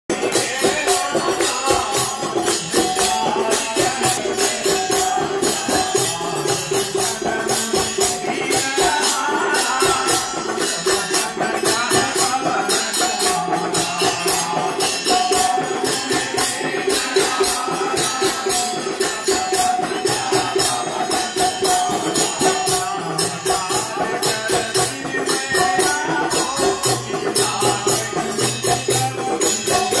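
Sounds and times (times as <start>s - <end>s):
jingling hand percussion: 0.1s - 30.0s.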